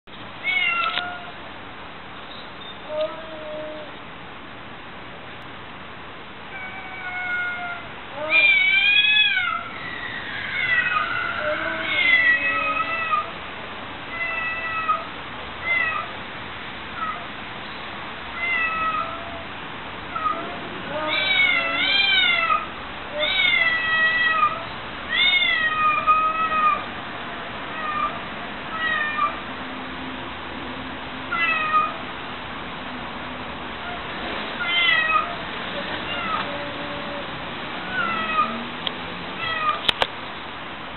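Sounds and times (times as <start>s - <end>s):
cats yowling: 0.4s - 1.4s, 2.8s - 3.9s, 6.5s - 13.4s, 14.1s - 16.2s, 17.0s - 17.4s, 18.4s - 19.5s, 20.1s - 27.0s, 27.6s - 29.4s, 31.3s - 32.1s, 33.8s - 38.7s, 39.4s - 39.9s.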